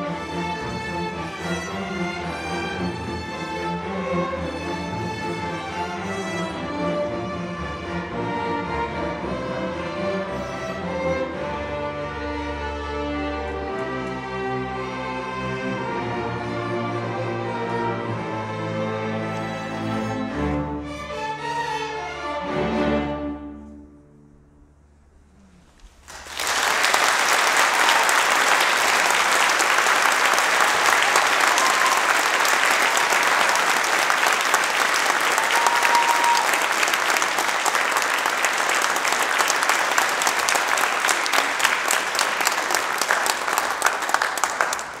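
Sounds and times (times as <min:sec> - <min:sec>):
audience applauding: 0:25.9 - 0:45.0.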